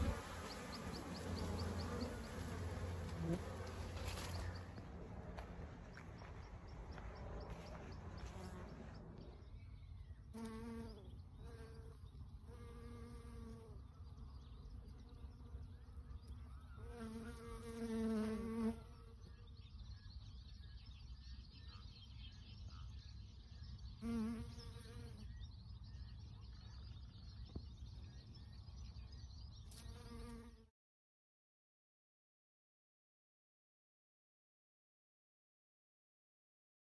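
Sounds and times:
bees buzzing past: 0:00.0 - 0:09.5, 0:10.3 - 0:13.9, 0:15.3 - 0:19.3.

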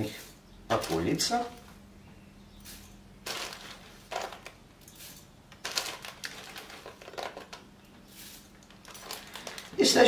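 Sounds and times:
dry flakes falling into bowl: 0:02.6 - 0:07.6
plastic bag rustling: 0:02.7 - 0:10.0.

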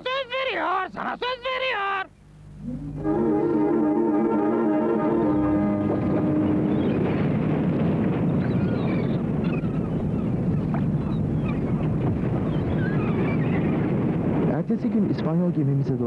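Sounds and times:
low rumbling wash: 0:02.5 - 0:16.0
held brass note: 0:02.6 - 0:07.3
high bird cries: 0:08.4 - 0:11.8.

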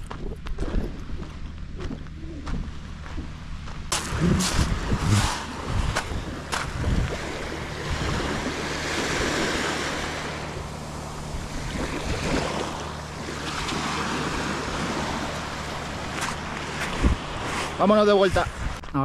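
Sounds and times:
footsteps crunching on pebbles: 0:00.0 - 0:07.0
small waves washing on beach: 0:03.9 - 0:18.8.

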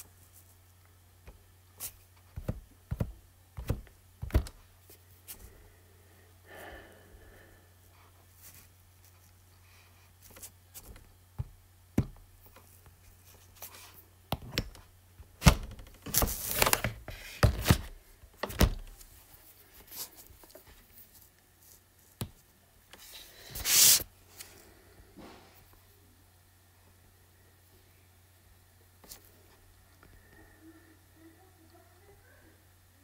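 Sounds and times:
low steady hum: 0:00.0 - 0:33.0
handling taps and knocks: 0:02.2 - 0:04.6, 0:10.3 - 0:13.0.

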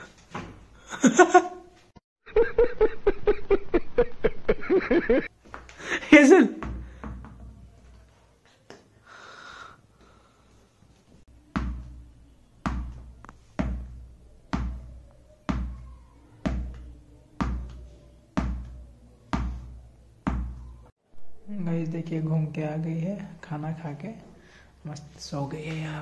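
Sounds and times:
tennis ball bouncing on tiles: 0:06.6 - 0:08.0, 0:11.4 - 0:20.9.

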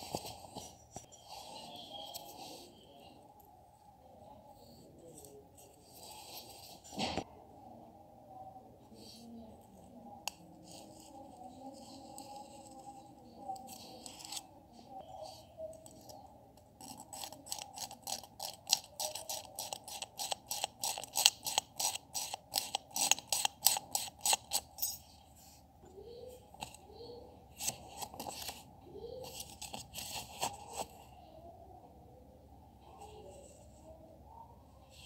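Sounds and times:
metal blade scraping paper: 0:16.8 - 0:25.1.

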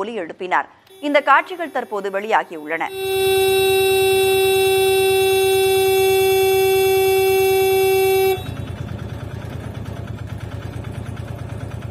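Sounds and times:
vehicle horn long blast: 0:00.9 - 0:09.0
vehicle engine idling: 0:00.9 - 0:11.9.

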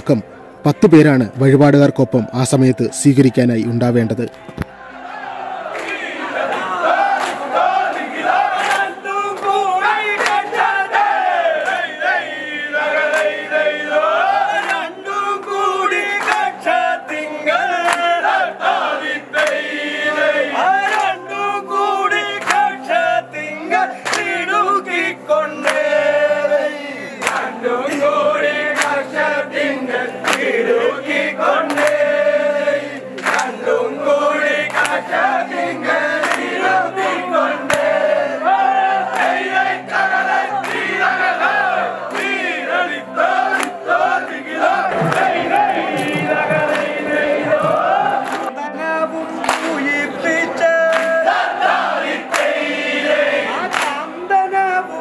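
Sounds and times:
claps keeping time: 0:05.7 - 0:20.0, 0:20.7 - 0:23.0, 0:24.0 - 0:26.2, 0:27.2 - 0:32.3, 0:33.1 - 0:38.1, 0:39.0 - 0:39.7, 0:40.6 - 0:48.6, 0:49.4 - 0:50.1, 0:50.8 - 0:54.1
men singing in chorus: 0:05.8 - 0:55.0.

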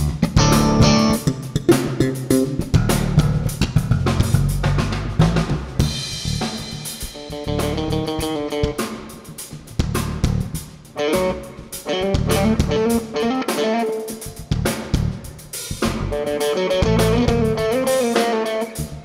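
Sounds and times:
electric guitar notes: 0:00.0 - 0:02.6, 0:07.2 - 0:08.9, 0:11.0 - 0:14.5, 0:16.1 - 0:19.0
drum kit playing: 0:00.0 - 0:19.0
electric bass: 0:00.0 - 0:19.0.

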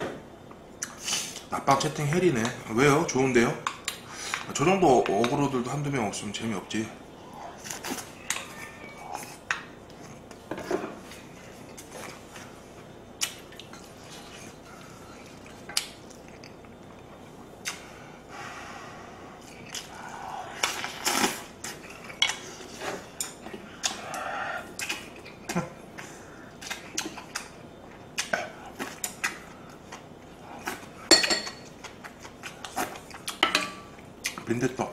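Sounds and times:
person eating: 0:07.3 - 0:33.4
utensils clinking on bowl and pot: 0:31.1 - 0:31.7.

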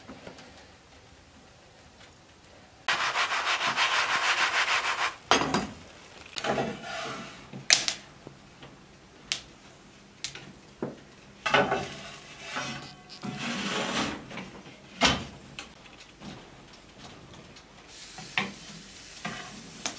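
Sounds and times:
frying pan scraping on stove: 0:06.3 - 0:07.5, 0:11.5 - 0:14.6.

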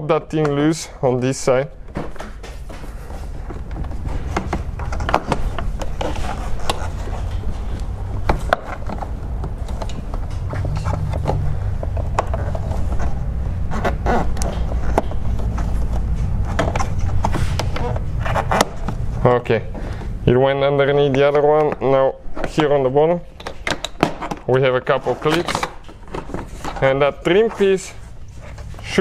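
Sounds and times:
steady low rumble: 0:00.9 - 0:21.1.

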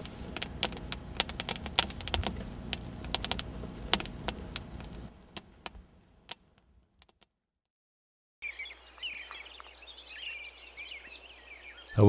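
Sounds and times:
low steady rumble: 0:00.0 - 0:06.6
campfire crackling and popping: 0:00.0 - 0:07.3, 0:08.8 - 0:12.0.

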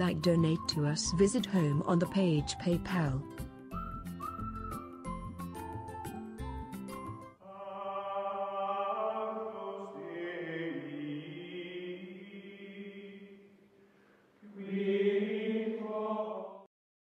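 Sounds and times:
choir chanting long chords: 0:07.4 - 0:13.6, 0:14.4 - 0:16.7.

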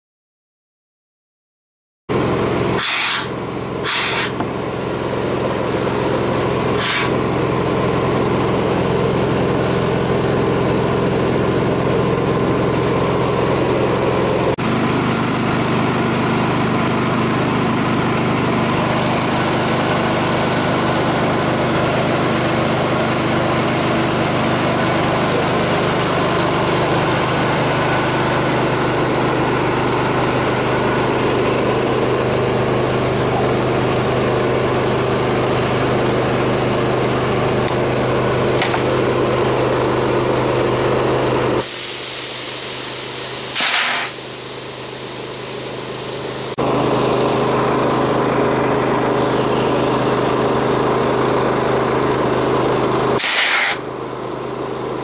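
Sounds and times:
small motor running: 0:02.8 - 0:10.9.

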